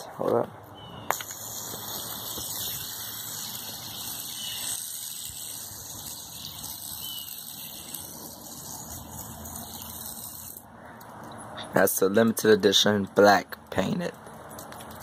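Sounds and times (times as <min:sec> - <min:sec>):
fidget spinner whirring: 0:01.1 - 0:10.7.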